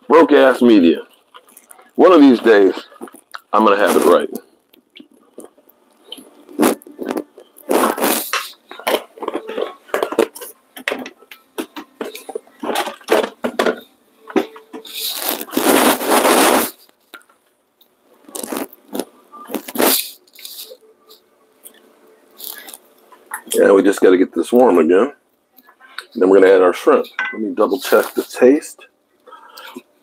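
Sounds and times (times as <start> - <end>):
wooden spoon scraping pot: 6.2 - 16.8.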